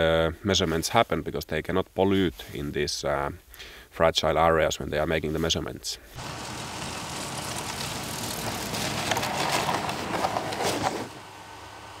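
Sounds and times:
snowmobile track hissing over snow: 6.2s - 12.0s.

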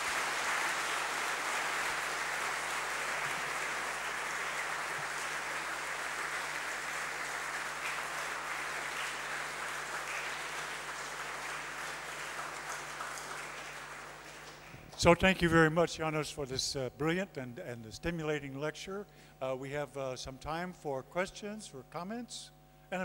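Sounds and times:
audience applauding: 0.0s - 15.1s.

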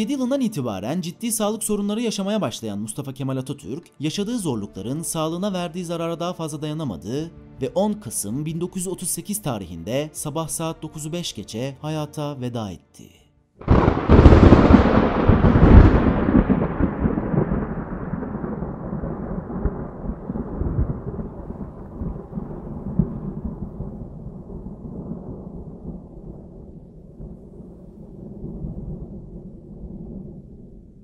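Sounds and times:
thunder-like boom and rumble: 13.6s - 31.0s.

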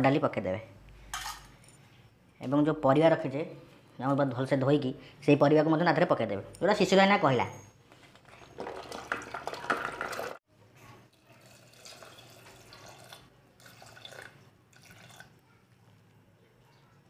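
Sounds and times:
water pouring and splashing: 8.5s - 10.4s, 11.4s - 15.3s.

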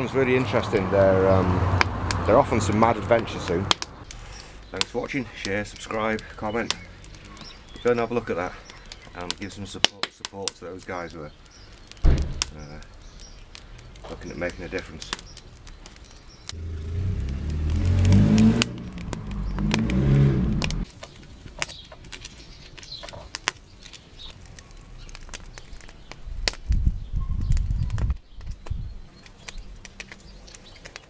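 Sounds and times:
wood fire crackling: 0.0s - 31.0s
loud low rumble: 16.5s - 20.8s.

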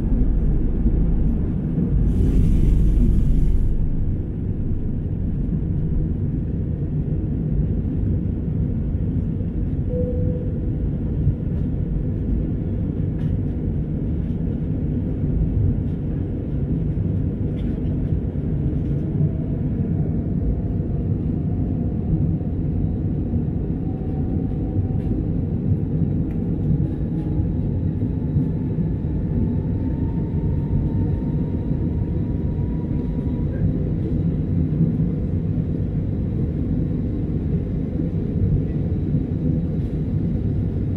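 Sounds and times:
faint rising whine: 0.0s - 6.7s
airplane cabin rumble: 0.0s - 40.9s.

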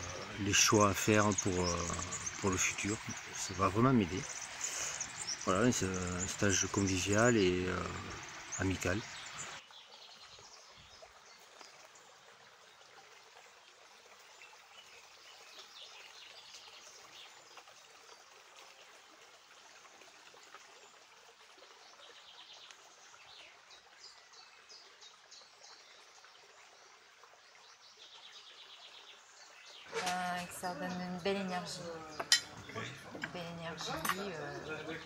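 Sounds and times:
birds chirping trills: 0.0s - 11.4s, 27.8s - 35.0s
soft steady hiss: 0.0s - 35.0s.

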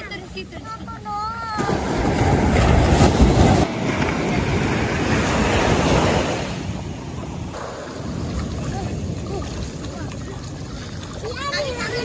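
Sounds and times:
surf on beach: 0.0s - 12.0s
wind buffeting microphone: 0.0s - 12.0s.

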